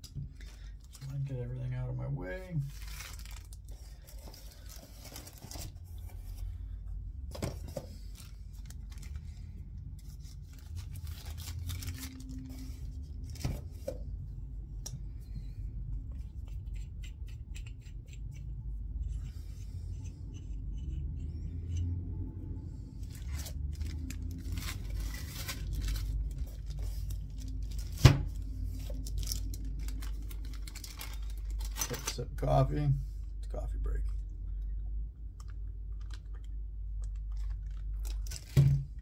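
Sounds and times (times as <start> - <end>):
steady low hum: 0.0 - 39.0.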